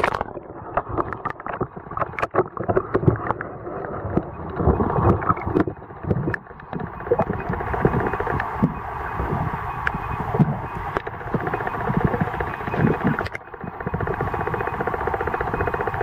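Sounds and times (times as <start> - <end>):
muffled underwater water rush: 0.0 - 16.0
underwater clicks and knocks: 0.0 - 16.0.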